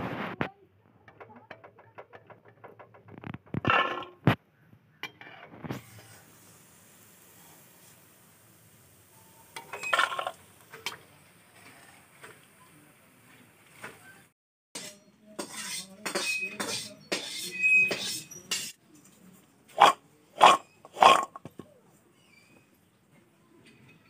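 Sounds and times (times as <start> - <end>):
steel utensils clinking: 9.5 - 11.0, 14.8 - 18.8.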